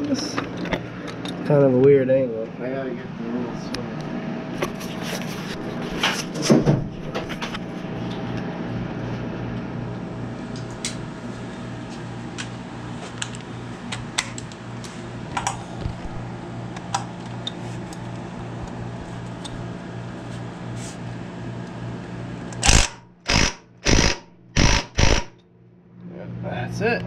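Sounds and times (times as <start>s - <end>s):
steady low hum: 0.0s - 27.0s
impact wrench hammering: 22.6s - 25.4s.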